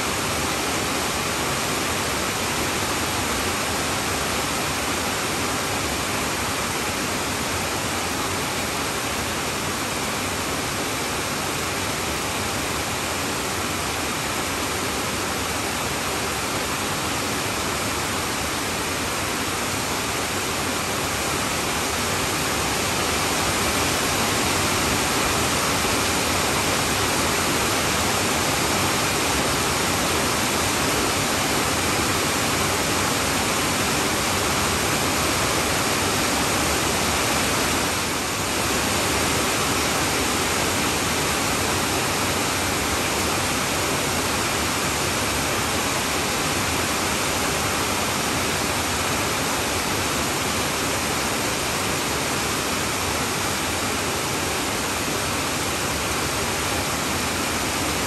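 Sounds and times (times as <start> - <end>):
heavy rain on a tin roof: 0.0 - 58.0.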